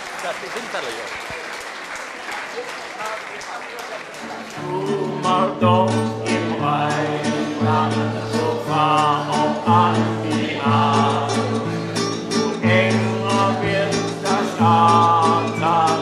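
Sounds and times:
acoustic guitars: 3.6 - 16.0
group of men and women singing: 4.6 - 16.0.

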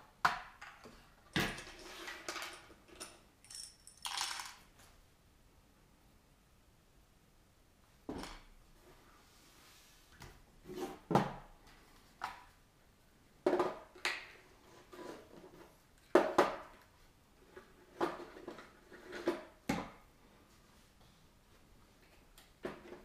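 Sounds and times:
plastic parts clattering on table: 0.5 - 4.7.

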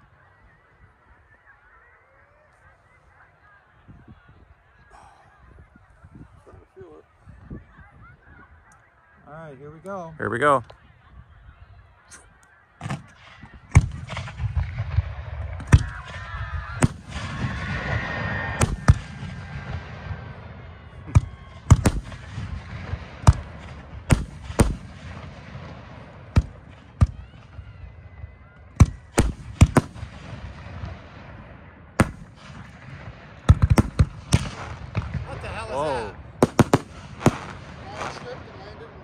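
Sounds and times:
fireworks booming: 12.8 - 27.6, 28.8 - 39.0.

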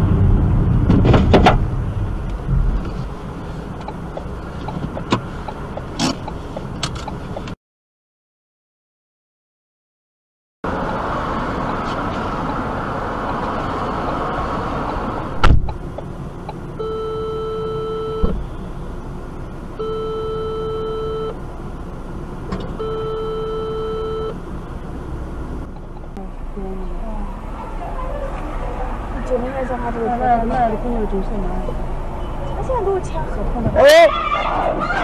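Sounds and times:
loud collision crash: 0.0 - 2.8
car road noise: 0.0 - 7.6, 10.6 - 35.0
electronic beeping tone: 16.8 - 18.4, 19.8 - 21.4, 22.8 - 24.4.

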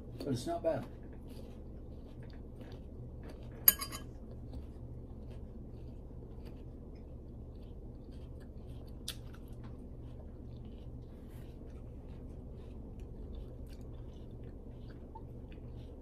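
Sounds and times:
metal spoon clinking: 3.6 - 4.1.

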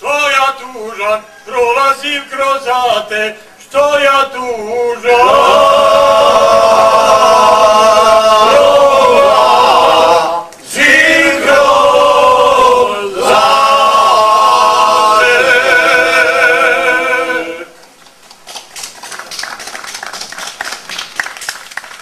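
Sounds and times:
men singing a cappella: 0.4 - 17.8.

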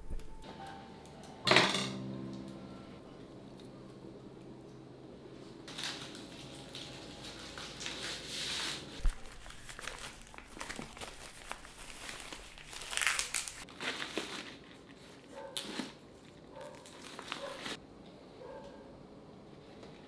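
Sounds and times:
dry leaves crinkling: 5.7 - 15.9, 16.5 - 17.8.

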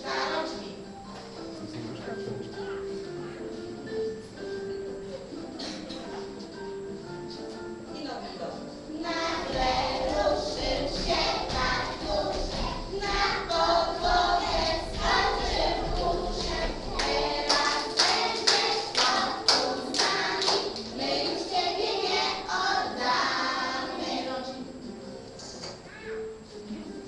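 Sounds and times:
children singing: 0.0 - 0.8, 8.9 - 24.8
rhythmic hand claps: 9.6 - 22.2.

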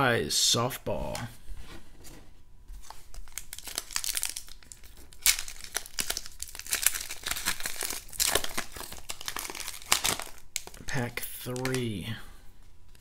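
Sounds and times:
wrapper ripping: 2.8 - 10.9
foil wrapper crinkling: 2.8 - 12.0.

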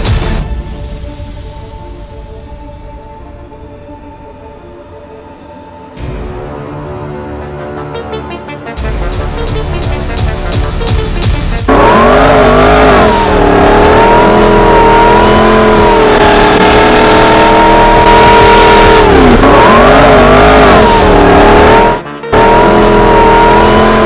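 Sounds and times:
music: 0.0 - 24.0
engine revving sound effect: 8.8 - 24.0.

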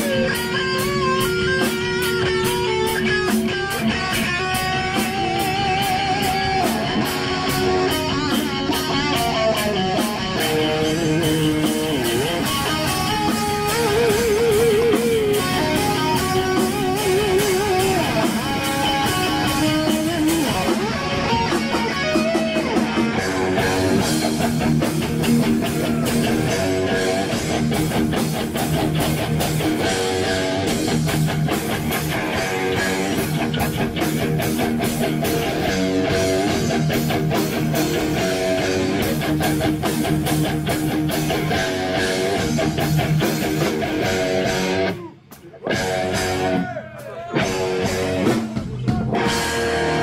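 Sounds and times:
live rock band playing: 0.0 - 50.0.

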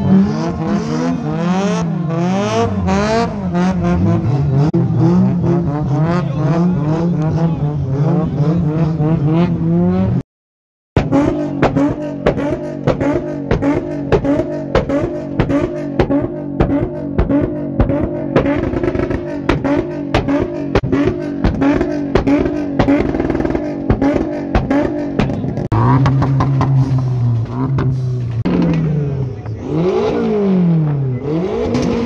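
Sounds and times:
second car engine revving: 0.0 - 10.2, 11.0 - 32.0
car engine on rev limiter: 11.0 - 32.0
exhaust banging: 11.0 - 32.0.

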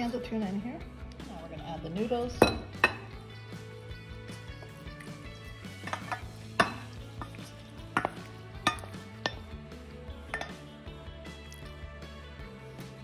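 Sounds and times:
soft background music: 0.0 - 13.0
metal spoon scraping pot: 5.7 - 9.4
clinks of metal and glass: 5.8 - 9.4, 10.3 - 10.6.

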